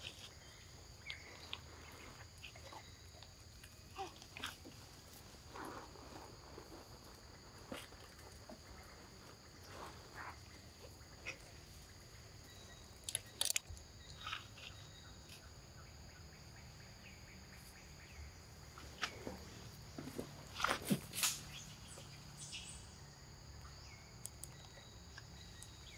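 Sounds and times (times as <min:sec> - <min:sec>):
sharp clicks and rustles: 0:13.0 - 0:14.4.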